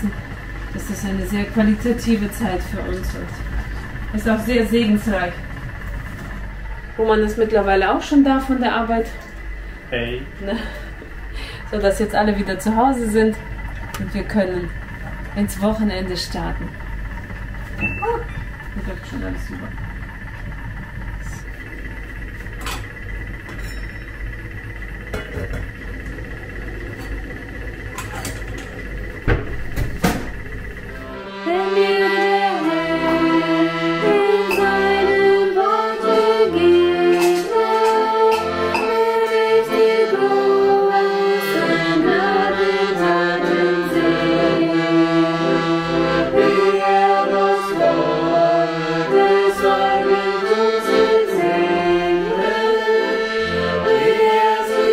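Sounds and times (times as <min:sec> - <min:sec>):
piano accordion playing a tune: 0:00.0 - 0:06.1, 0:30.8 - 0:54.9
steady low hum: 0:00.0 - 0:54.9.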